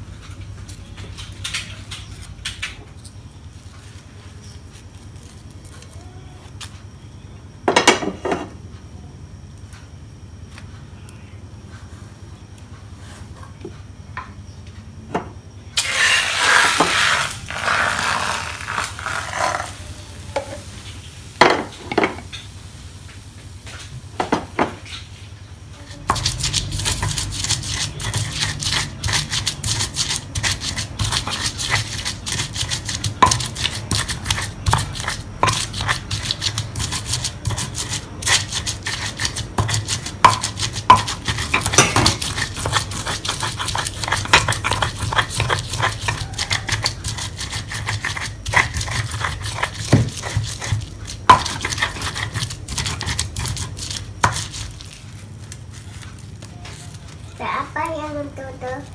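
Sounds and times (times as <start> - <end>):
pestle grinding in stone mortar: 15.8 - 19.8, 25.8 - 57.3
spatula scraping frying pan: 15.8 - 19.8, 25.9 - 55.0.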